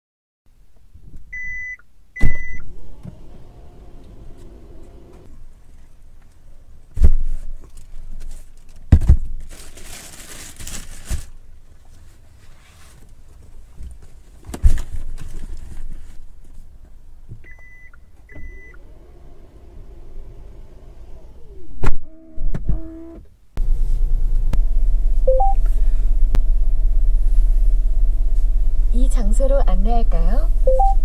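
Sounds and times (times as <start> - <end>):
short warning beeps: 1.4 - 2.6, 25.3 - 25.7, 30.6 - 31.0
tailgate motor humming: 2.2 - 5.3, 18.3 - 27.1
bags rustling: 9.4 - 11.4.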